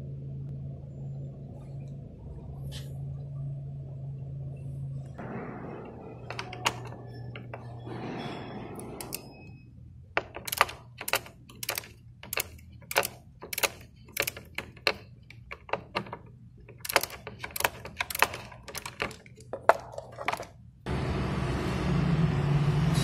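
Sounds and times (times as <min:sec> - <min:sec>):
ratchet wrench clicking: 0:09.0 - 0:09.2, 0:10.2 - 0:19.5.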